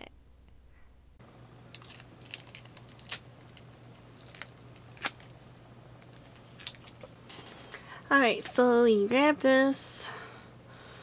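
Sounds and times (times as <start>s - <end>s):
plastic film crinkling: 1.7s - 5.4s, 6.0s - 7.1s.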